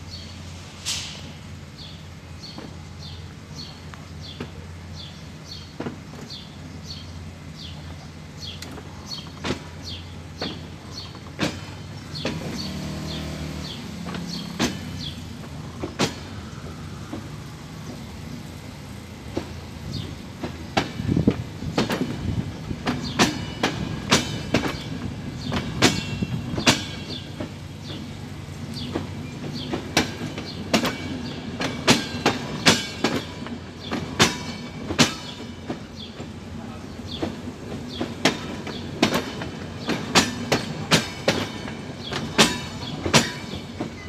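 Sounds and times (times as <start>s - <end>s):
train low rumble: 0.0s - 44.0s
train wheels clicking over joints: 2.4s - 44.0s.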